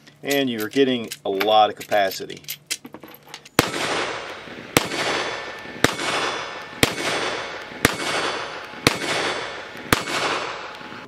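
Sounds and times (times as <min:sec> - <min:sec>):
pistol shots with echo: 0:03.6 - 0:10.9.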